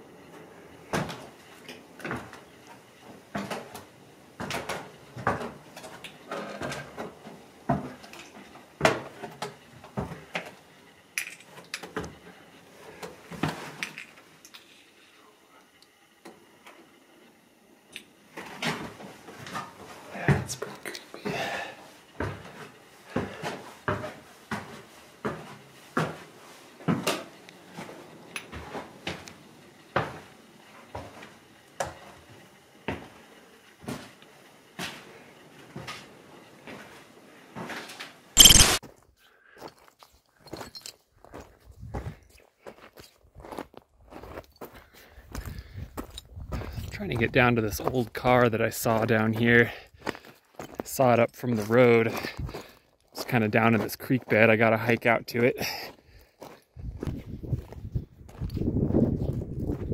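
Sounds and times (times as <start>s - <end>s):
footsteps on stairs: 22.2s - 27.1s.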